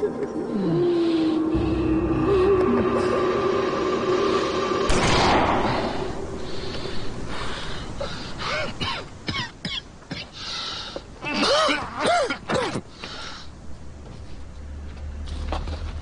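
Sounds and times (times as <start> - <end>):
held music notes: 0.0 - 7.4
man breathing and moaning: 0.3 - 4.9, 5.5 - 9.2.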